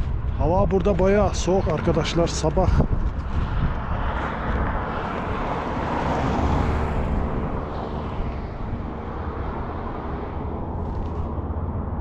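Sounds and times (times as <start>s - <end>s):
vehicle passing on road: 0.0s - 12.0s.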